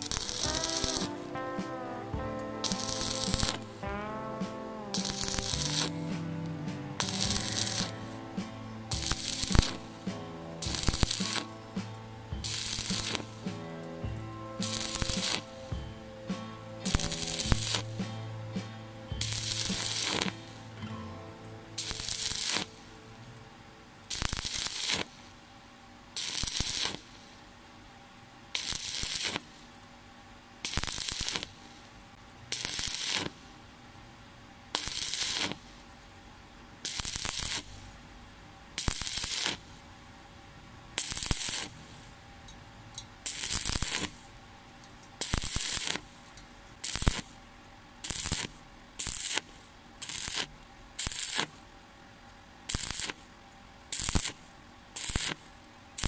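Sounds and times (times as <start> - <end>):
welding arc crackling: 0.0 - 20.8, 21.8 - 23.2, 24.1 - 25.3, 26.2 - 27.3, 28.5 - 29.7, 30.6 - 31.9, 32.5 - 33.5, 34.7 - 35.7, 36.8 - 38.0, 38.8 - 39.7, 41.0 - 42.0, 43.2 - 44.4, 45.2 - 46.2, 46.8 - 47.4, 48.0 - 51.6, 52.7 - 53.3, 53.9 - 56.0.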